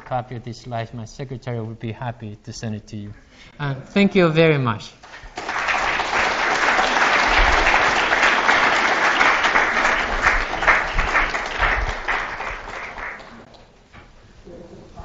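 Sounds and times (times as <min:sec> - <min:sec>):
audience applauding: 0:05.0 - 0:13.7.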